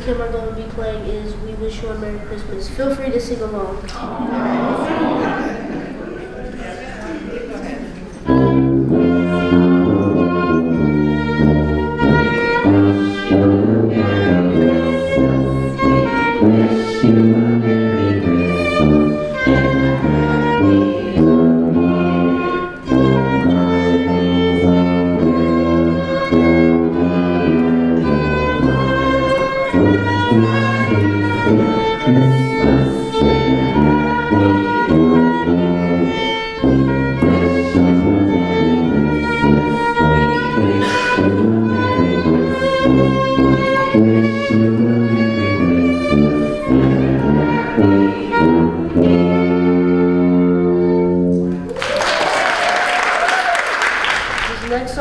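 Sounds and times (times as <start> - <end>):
violin melody: 8.1 - 51.7
applause: 51.6 - 55.0.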